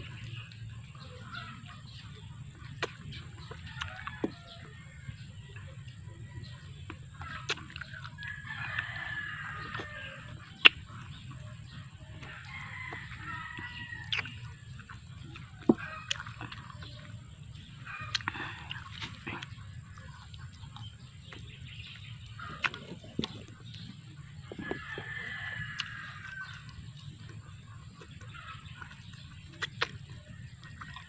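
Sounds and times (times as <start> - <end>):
rooster crowing: 8.3 - 10.3, 24.6 - 26.7.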